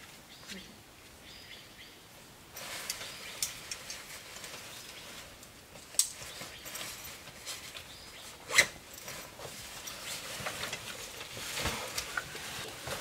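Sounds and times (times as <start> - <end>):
fabric rustling: 2.5 - 13.0
strap buckles clicking: 8.5 - 9.2.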